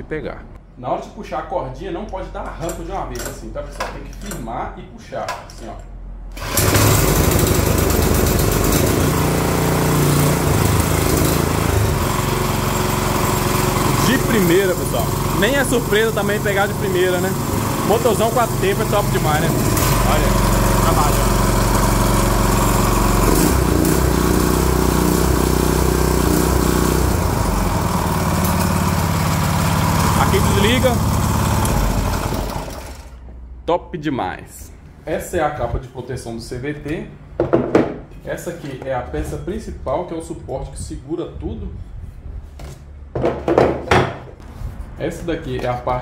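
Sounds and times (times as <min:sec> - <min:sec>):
small gasoline engine running: 0:06.3 - 0:33.2.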